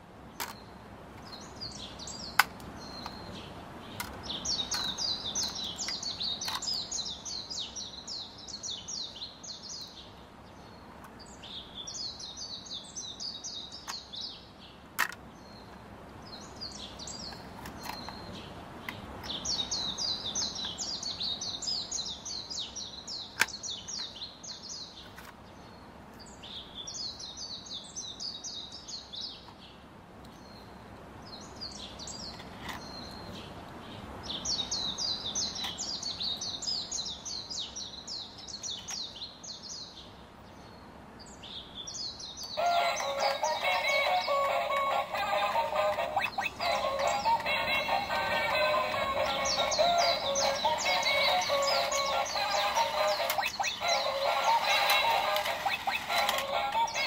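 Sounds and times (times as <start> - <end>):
small birds chirping: 0.0 - 57.0
plastic toy track clicks: 4.0 - 6.8, 15.0 - 15.2, 42.6 - 57.0.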